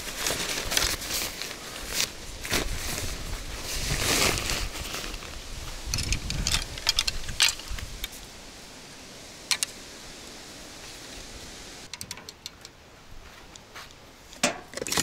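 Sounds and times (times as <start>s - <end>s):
cloth bag rustling: 0.0s - 5.4s
rod sections clicking together: 5.9s - 7.9s, 11.9s - 12.8s.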